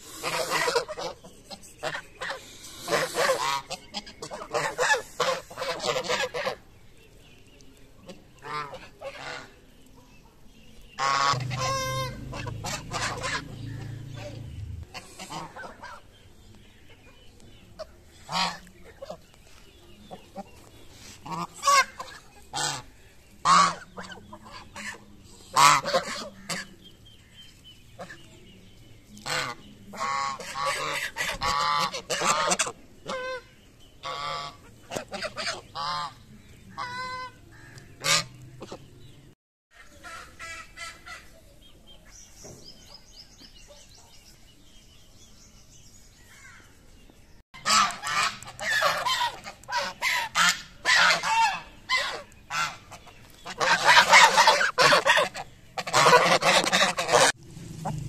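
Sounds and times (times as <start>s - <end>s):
geese honking: 0.0s - 6.7s, 8.1s - 9.6s, 11.0s - 16.1s, 17.8s - 19.3s, 20.1s - 26.8s, 29.2s - 38.8s, 47.6s - 58.0s.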